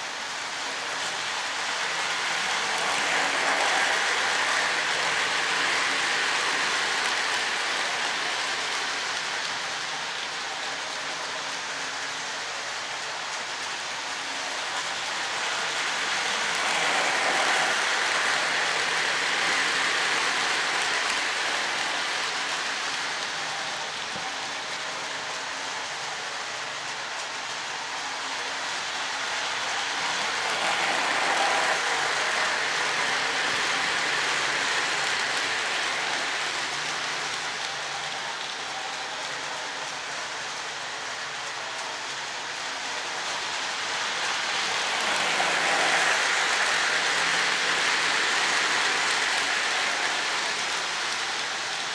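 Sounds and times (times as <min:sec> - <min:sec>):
model train wheels clattering on rails: 0:01.0 - 0:09.6, 0:41.4 - 0:51.9.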